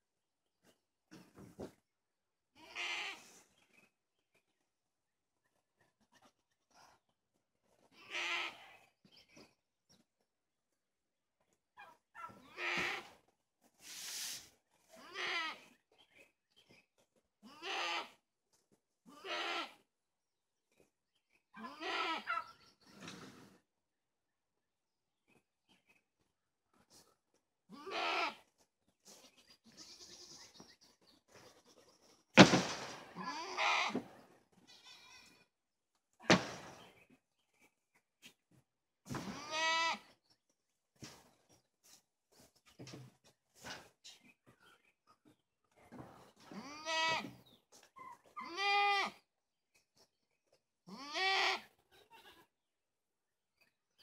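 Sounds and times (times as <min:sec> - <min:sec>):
goats bleating: 0:19.1 - 0:19.8, 0:21.6 - 0:22.4, 0:27.7 - 0:28.4, 0:34.7 - 0:35.4, 0:39.3 - 0:40.1, 0:46.5 - 0:47.4, 0:48.4 - 0:49.2, 0:50.9 - 0:52.4
hay bale thumping down: 0:32.4 - 0:33.2, 0:36.3 - 0:36.8.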